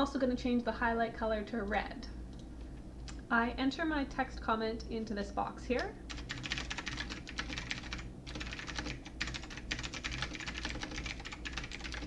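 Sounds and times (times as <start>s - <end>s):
typing on computer keyboard: 6.1s - 12.0s.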